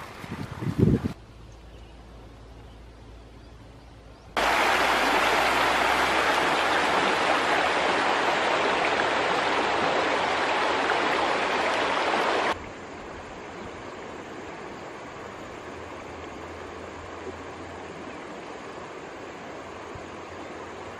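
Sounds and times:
river water rushing: 0:04.4 - 0:20.9.

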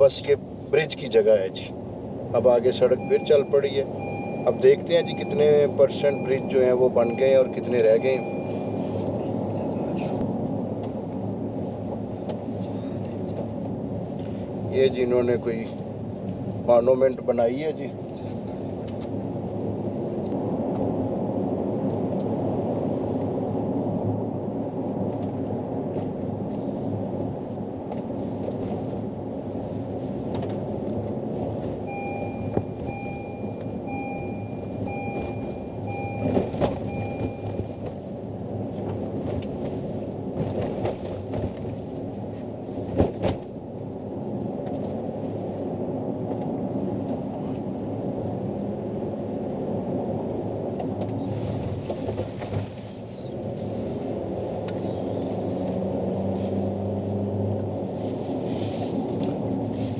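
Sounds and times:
car engine: 0:00.0 - 0:59.9
road noise: 0:00.0 - 0:59.9
short electronic beeps: 0:02.9 - 0:08.8, 0:31.9 - 0:37.8.

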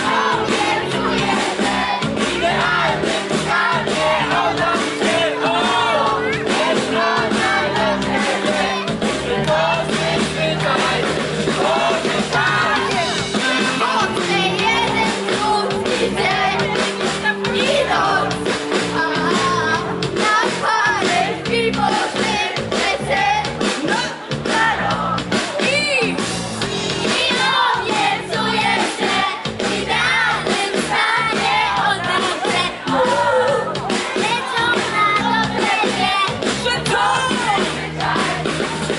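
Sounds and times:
live pop-rock band: 0:00.0 - 0:38.9.

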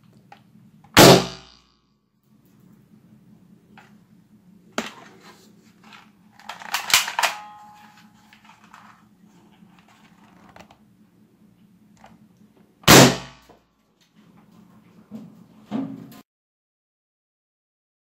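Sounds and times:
balloon bursting: 0:01.0 - 0:01.6
toy gun clicking and rattling: 0:05.8 - 0:09.0.

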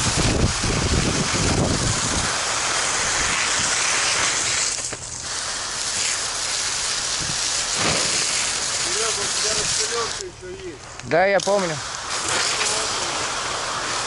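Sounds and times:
fire hose spraying water: 0:00.0 - 0:14.0.

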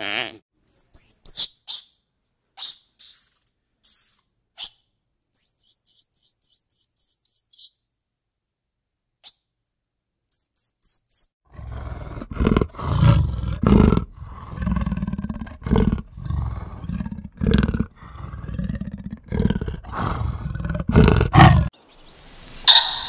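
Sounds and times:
monkey chirping: 0:00.6 - 0:02.0, 0:02.6 - 0:04.8, 0:05.4 - 0:07.8, 0:10.3 - 0:11.3, 0:22.6 - 0:23.0
big cat roaring grunts: 0:11.5 - 0:21.7.

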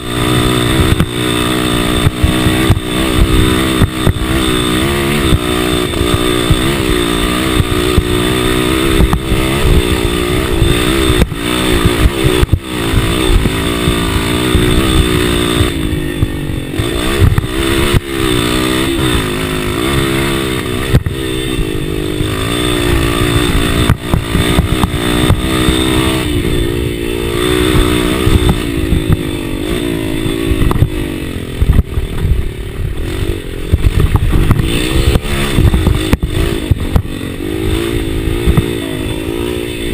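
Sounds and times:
dirt bike engine revving: 0:00.0 - 0:39.9
sharp knocks and rattles: 0:33.0 - 0:38.9.

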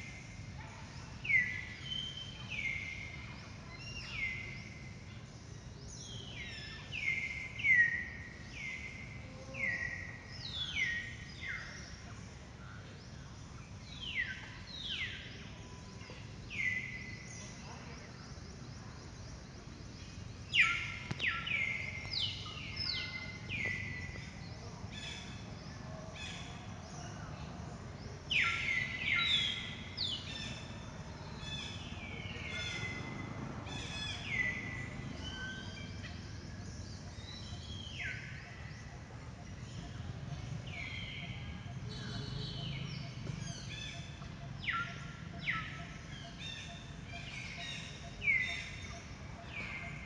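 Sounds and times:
low outdoor ambient hum: 0:00.0 - 0:50.0.

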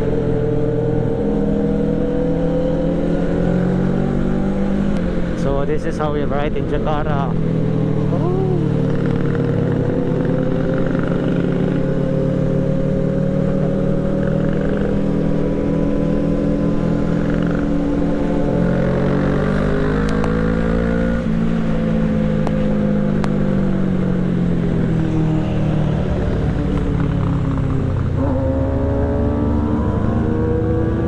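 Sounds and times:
motorcycle engine accelerating: 0:00.0 - 0:31.0
other motorcycle engines: 0:00.0 - 0:31.0.

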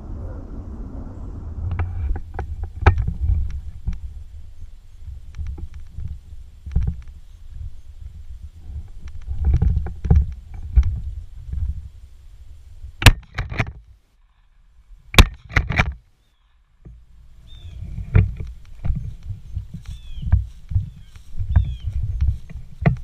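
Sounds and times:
wind on microphone: 0:00.0 - 0:13.6, 0:17.4 - 0:23.0
footsteps through dry grass: 0:16.2 - 0:23.0.

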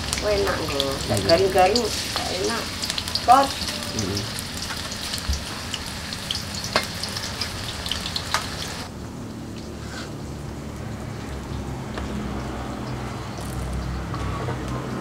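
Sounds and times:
tofu sizzling in hot oil: 0:00.0 - 0:08.9.

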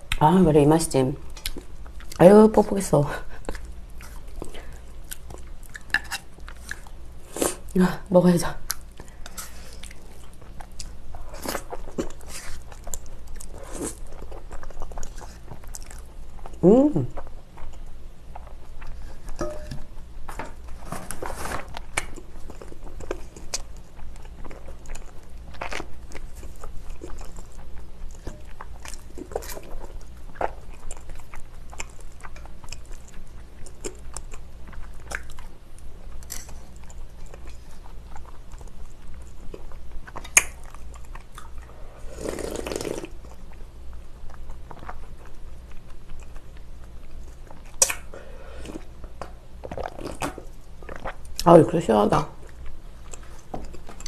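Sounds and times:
close-miked chewing noodles: 0:03.2 - 0:07.7, 0:08.6 - 0:19.4, 0:20.0 - 0:51.6, 0:52.4 - 0:54.0
wet mouth clicks and crunches: 0:39.5 - 0:41.6, 0:47.4 - 0:48.1.

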